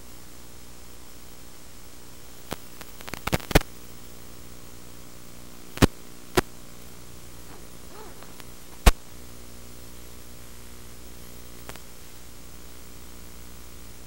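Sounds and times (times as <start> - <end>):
static hiss: 0.0 - 14.0
sharp pops: 7.5 - 9.0.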